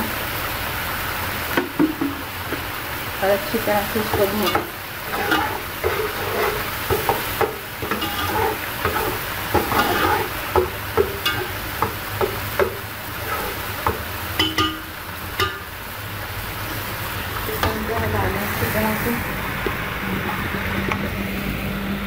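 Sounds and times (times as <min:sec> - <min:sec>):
paste sizzling in oil: 0:00.1 - 0:21.6
spoon scraping a steel pot: 0:04.4 - 0:07.2, 0:07.8 - 0:10.4, 0:11.2 - 0:11.6, 0:13.2 - 0:13.6.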